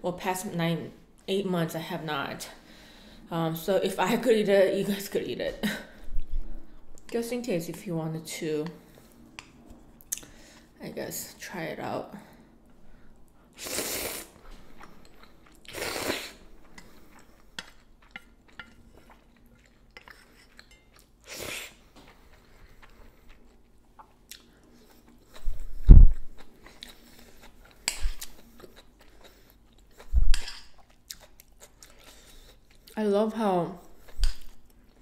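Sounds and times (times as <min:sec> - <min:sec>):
slurping and chewing noodles: 0:13.5 - 0:33.0.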